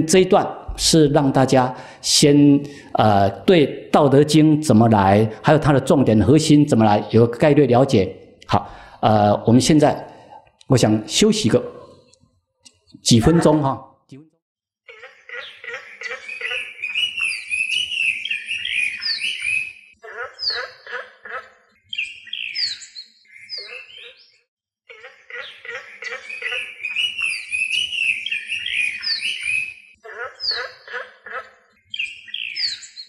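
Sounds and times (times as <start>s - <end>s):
birds chirping and trilling: 0.0s - 13.8s, 14.9s - 33.0s.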